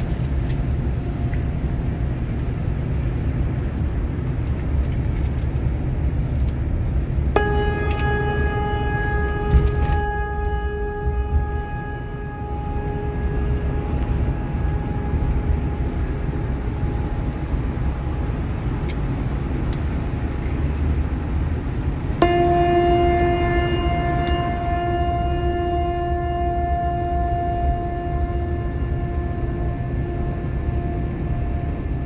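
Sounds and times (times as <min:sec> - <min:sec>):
steady ringing tone: 0:00.0 - 0:03.8, 0:07.3 - 0:20.3, 0:22.2 - 0:32.0
bus engine and tyres rumbling: 0:00.0 - 0:32.0.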